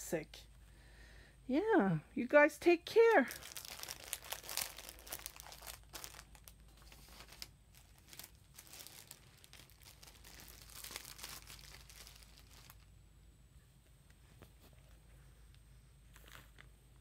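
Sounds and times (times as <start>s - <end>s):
packaging crinkling and rustling: 3.1s - 13.0s.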